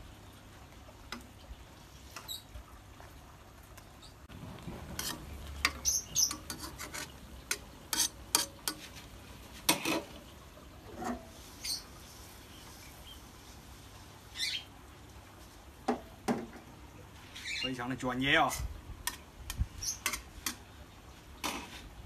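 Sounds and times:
metal spoon scraping a wok: 4.9 - 8.9.

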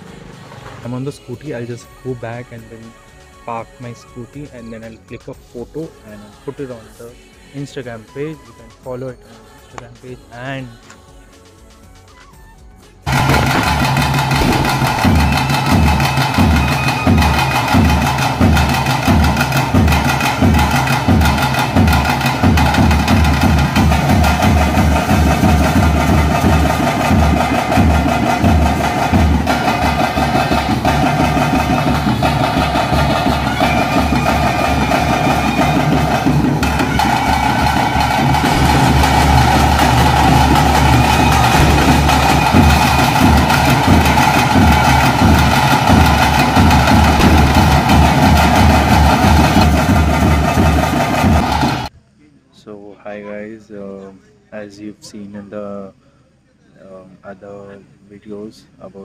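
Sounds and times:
loud rhythmic drumming: 13.1 - 51.9
held higher tone: 33.4 - 49.0.

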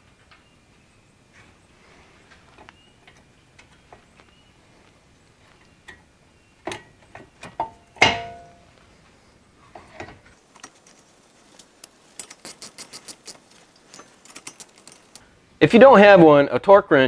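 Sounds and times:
metal knocks and clanks: 6.6 - 8.7.

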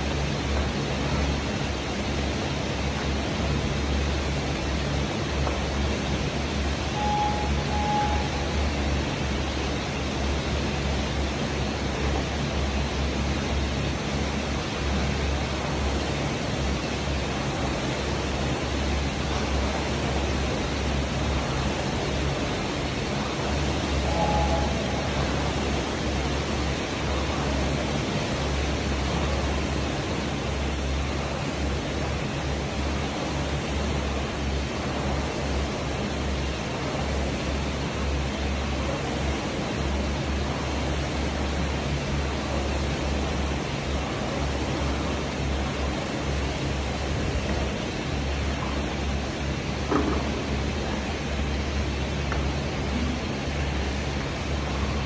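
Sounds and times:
rowing machine fan whooshing: 0.0 - 55.0
steady rushing noise: 0.0 - 55.0
low hum: 4.1 - 13.5, 14.2 - 38.0
short electronic beeps: 7.0 - 8.5, 24.0 - 25.2.

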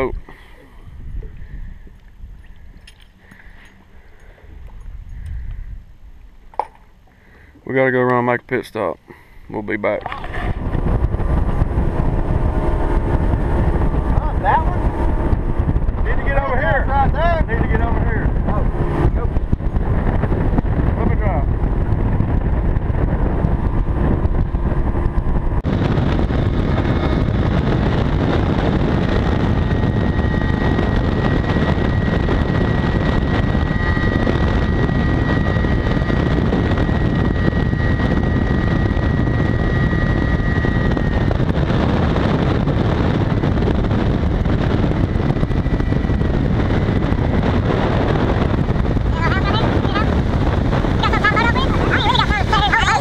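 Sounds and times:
outboard motor drone: 0.0 - 53.0
thin steady whine: 0.0 - 53.0
wind buffeting microphone: 0.0 - 53.0.

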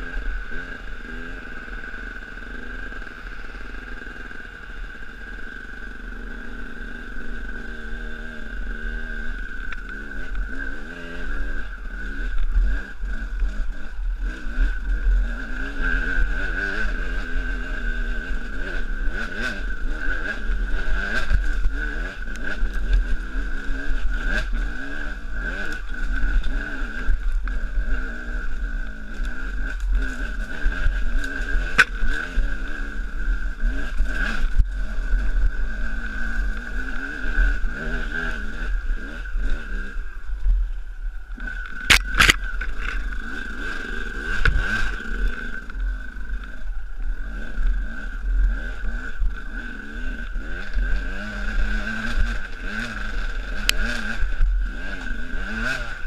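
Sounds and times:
dirt bike engine revving: 0.0 - 56.0
sharp clicks: 41.4 - 43.3.

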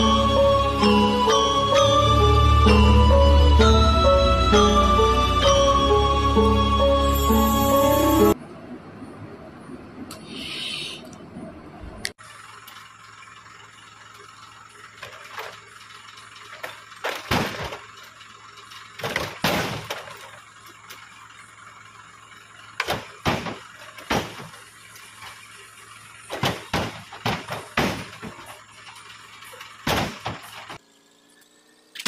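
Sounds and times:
fruit bunches knocking into truck bed: 17.1 - 17.8, 19.0 - 20.1, 22.8 - 24.6, 26.3 - 28.5, 29.8 - 30.5.

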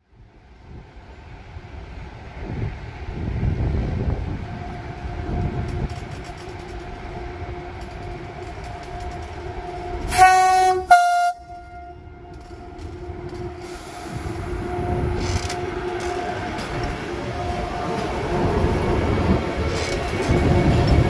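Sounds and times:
train humming and rumbling: 0.0 - 21.0
train horn blasts: 5.3 - 21.0.

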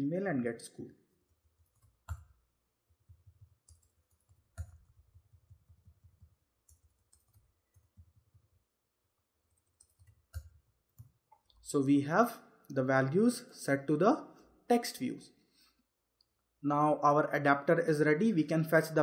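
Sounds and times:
computer keyboard typing: 1.3 - 8.6, 9.4 - 11.6.

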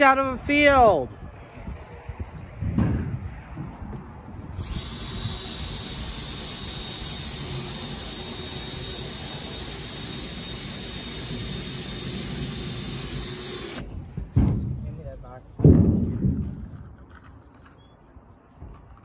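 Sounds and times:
cordless drill drilling metal: 4.5 - 13.9.

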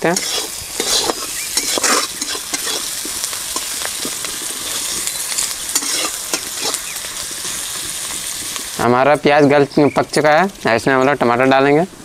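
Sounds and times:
metal spatula scraping pan: 0.0 - 7.6
onions sizzling in hot oil: 0.0 - 12.0.

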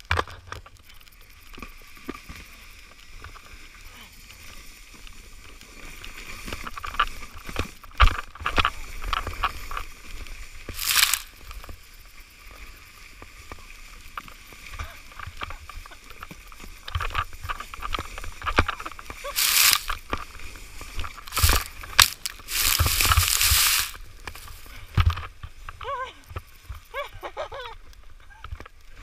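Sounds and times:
sled scraping over snow: 1.6 - 25.8
sled knocks and jolts: 10.6 - 11.5, 14.8 - 25.6.

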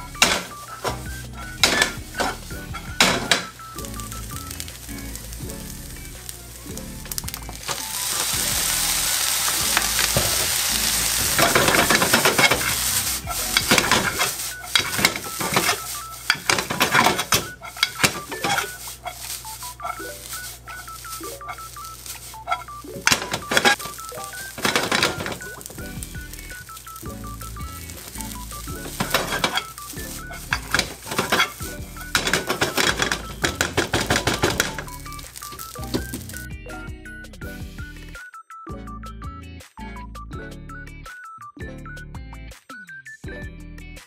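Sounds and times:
sauce sizzling in a frying pan: 0.0 - 36.5
soft background music: 0.0 - 44.0
spatula scraping a pan: 0.2 - 5.1, 7.2 - 36.3.

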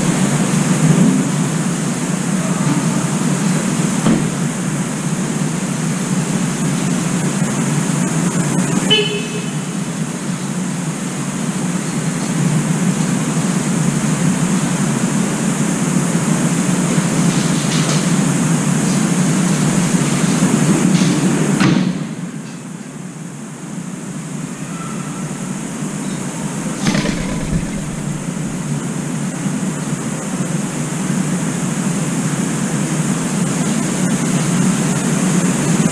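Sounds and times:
city traffic rumble and hiss: 0.0 - 35.9
soft thump: 26.8 - 28.7.

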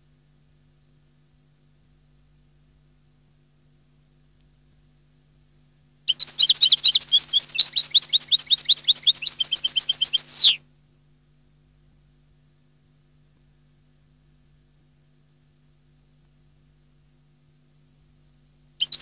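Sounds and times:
goldfinch twittering song: 6.1 - 10.6, 18.8 - 19.0.

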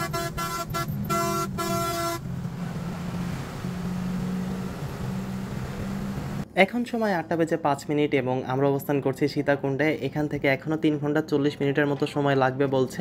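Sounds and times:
vehicle horn honking: 0.0 - 2.3
bus engine and tyres drone: 0.0 - 6.4.

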